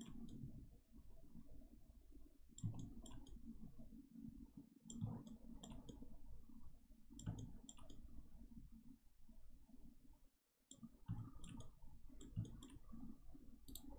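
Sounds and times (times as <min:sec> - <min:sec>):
computer mouse clicks: 0:00.0 - 0:00.5, 0:02.6 - 0:03.5, 0:04.9 - 0:06.2, 0:07.2 - 0:08.1, 0:10.7 - 0:13.0, 0:13.6 - 0:13.9.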